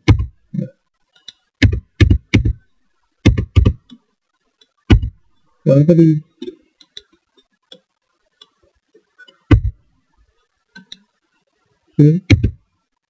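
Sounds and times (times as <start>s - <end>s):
mouse and keyboard clicks: 10.8s - 11.1s.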